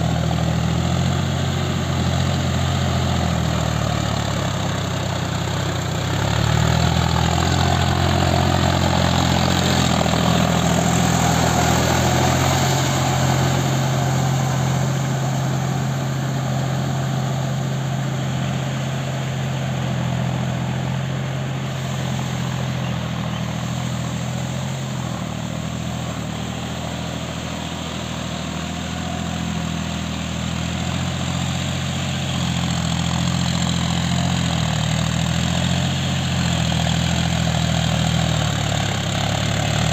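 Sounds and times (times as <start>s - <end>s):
tractor diesel engine running: 0.0s - 39.9s
churning water and mud: 6.0s - 17.6s.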